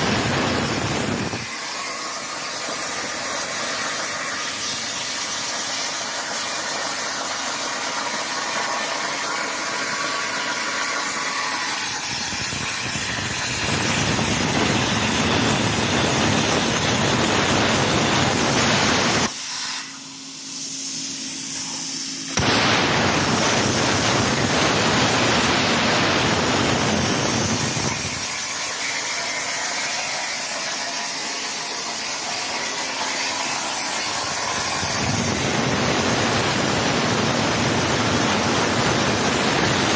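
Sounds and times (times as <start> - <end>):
plasma torch hissing arc: 0.0 - 39.9.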